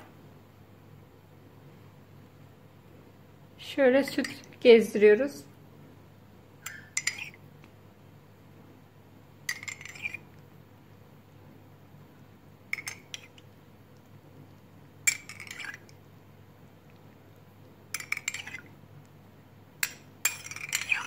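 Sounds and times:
metal spoon clinking against glass: 0:19.8 - 0:21.0.

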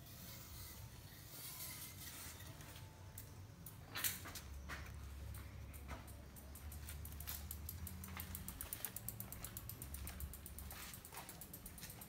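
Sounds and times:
bicycle freewheel ticking: 0:05.2 - 0:12.0.

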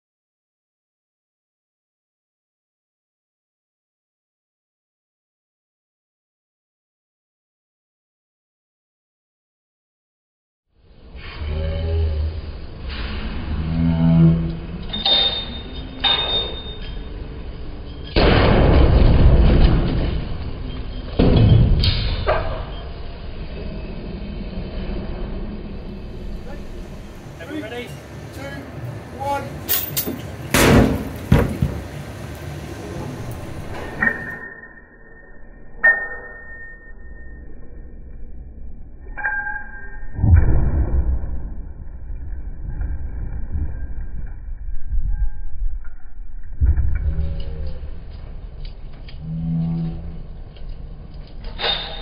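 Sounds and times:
sharp metallic clinks: 0:29.7 - 0:30.3.

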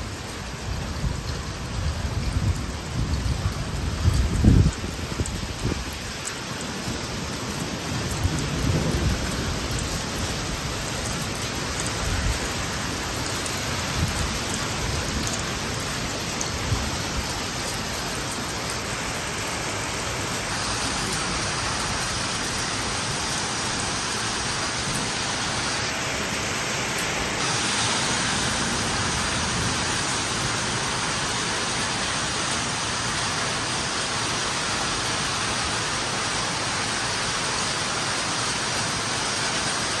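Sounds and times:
heavy rain pouring on street: 0:00.0 - 0:40.0
low rumbles of thunder: 0:07.3 - 0:11.2.

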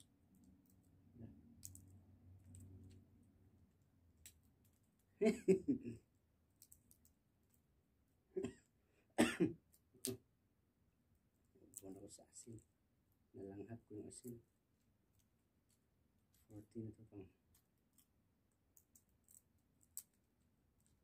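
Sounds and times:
seed shells cracking: 0:00.3 - 0:03.1, 0:06.5 - 0:07.6, 0:17.5 - 0:21.0.

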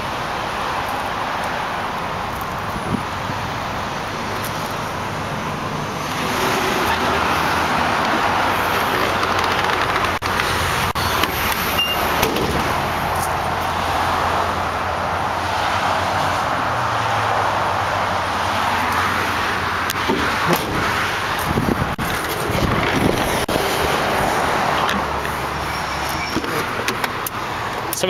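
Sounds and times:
highway traffic noise: 0:00.0 - 0:28.0.

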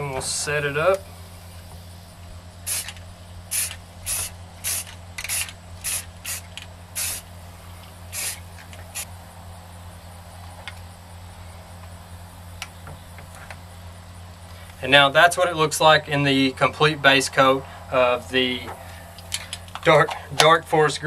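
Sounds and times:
spray paint can spraying: 0:02.6 - 0:09.1.

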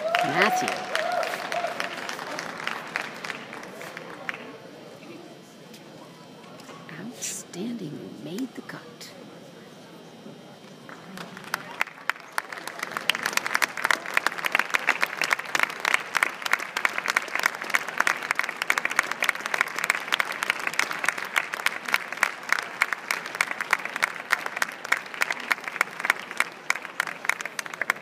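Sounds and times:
audience applauding: 0:00.0 - 0:04.7, 0:10.8 - 0:28.0.

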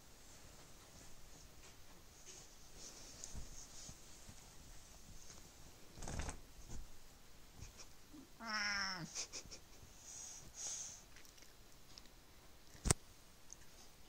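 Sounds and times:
fabric rustle: 0:00.0 - 0:07.8
cat meowing: 0:08.4 - 0:09.1.

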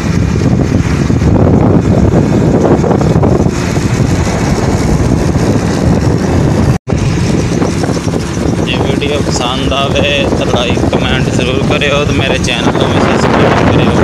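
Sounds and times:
small motorcycle running: 0:00.0 - 0:14.0
wind buffeting microphone: 0:00.0 - 0:14.0.

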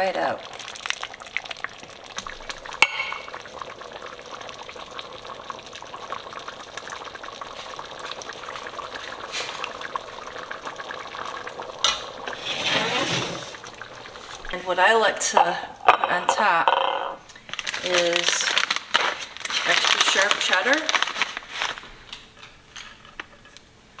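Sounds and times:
chili bubbling in pot: 0:00.0 - 0:24.0
ladle clinking on pot: 0:02.8 - 0:03.3.

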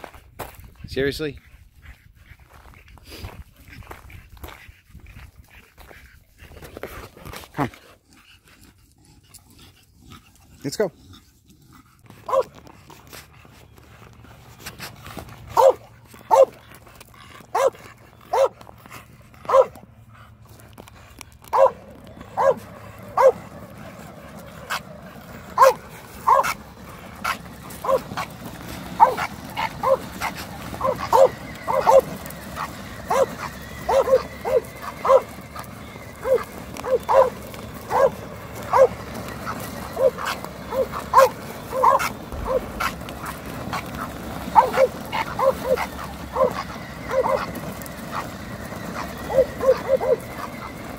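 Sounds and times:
dog barking: 0:12.3 - 0:12.5, 0:15.5 - 0:16.6, 0:17.5 - 0:18.6, 0:19.4 - 0:19.8, 0:21.5 - 0:23.4, 0:25.6 - 0:26.6, 0:27.8 - 0:28.2, 0:29.0 - 0:32.1, 0:33.1 - 0:35.3, 0:36.2 - 0:39.0, 0:40.0 - 0:43.8, 0:44.5 - 0:47.5, 0:49.3 - 0:50.2.

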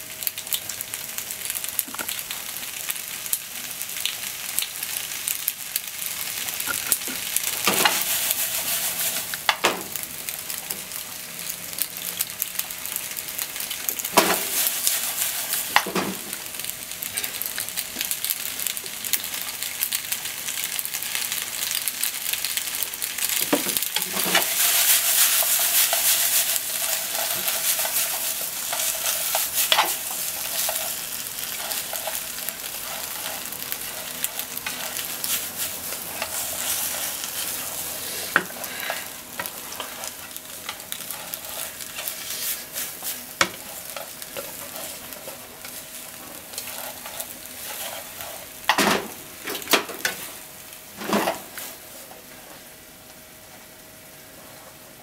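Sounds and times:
food sizzling in a frying pan: 0:00.0 - 0:55.0
utensil scraping pan: 0:07.6 - 0:09.5, 0:23.5 - 0:49.0.

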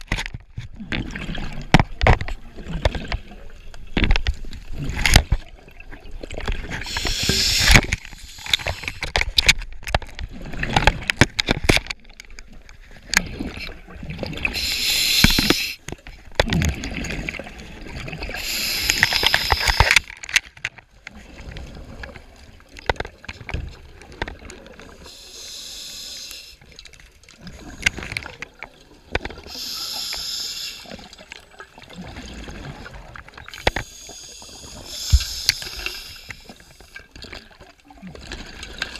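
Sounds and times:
bubbles gurgling underwater: 0:16.4 - 0:19.7.

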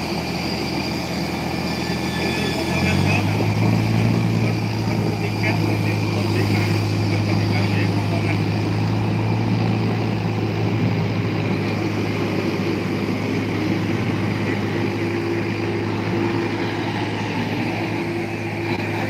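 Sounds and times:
idling engines drone: 0:00.0 - 0:19.0.

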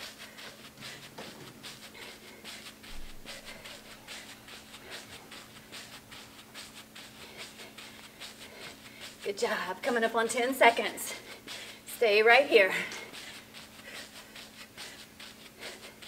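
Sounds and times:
faint steady hum: 0:00.0 - 0:16.0
sneakers scuffing on turf: 0:00.5 - 0:06.3.

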